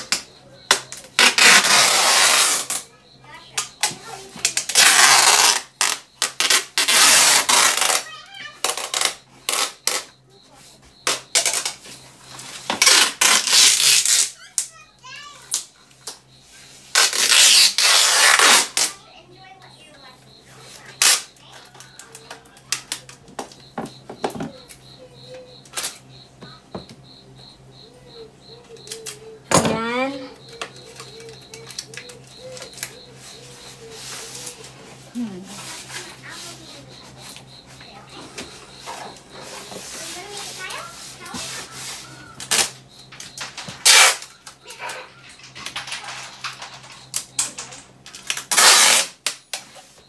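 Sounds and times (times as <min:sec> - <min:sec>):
faint high chirp: 0:00.1 - 0:45.4
packing tape tearing: 0:00.7 - 0:02.8, 0:04.4 - 0:10.1, 0:12.8 - 0:14.7, 0:16.9 - 0:19.0, 0:21.0 - 0:21.3, 0:28.7 - 0:29.2, 0:30.6 - 0:34.7, 0:41.0 - 0:42.8, 0:43.6 - 0:44.6, 0:48.1 - 0:49.6.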